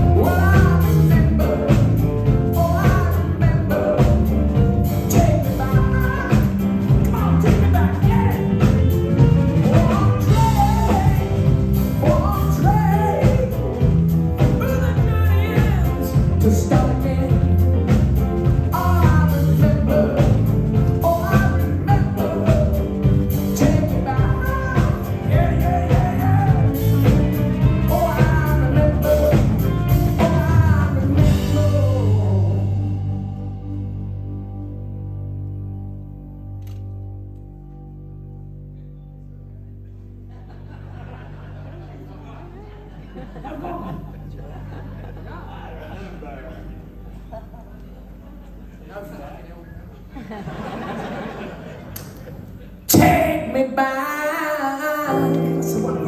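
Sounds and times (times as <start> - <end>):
steady drum beat: 0.0 - 33.2
man singing lead vocal: 0.0 - 33.6, 52.9 - 56.0
live rock band playing: 0.0 - 38.8, 54.9 - 56.0.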